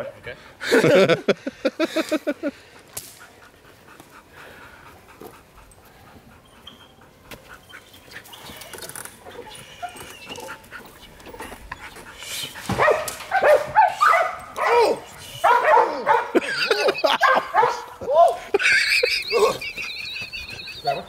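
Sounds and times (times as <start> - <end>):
dog panting: 2.5 - 16.3, 17.4 - 21.0
dog barking loudly: 12.6 - 18.5, 20.8 - 21.0.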